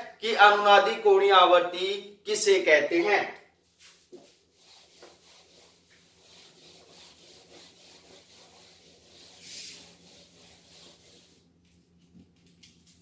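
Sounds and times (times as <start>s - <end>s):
eraser rubbing on whiteboard: 3.7s - 11.6s.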